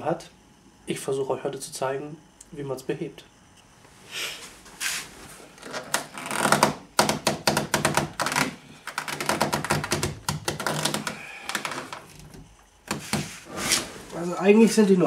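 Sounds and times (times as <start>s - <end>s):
plastic creaking: 5.6s - 13.1s.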